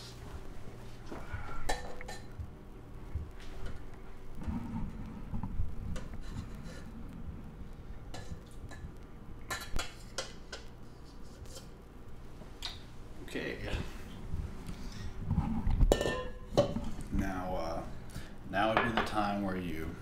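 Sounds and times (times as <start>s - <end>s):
metal bowl scraping and clinking glass: 15.7s - 17.0s.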